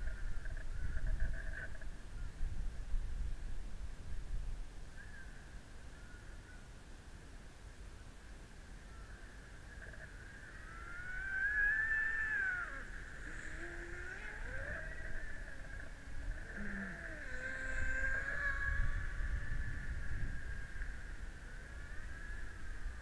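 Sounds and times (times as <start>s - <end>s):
model boat motor whining: 9.7s - 23.0s.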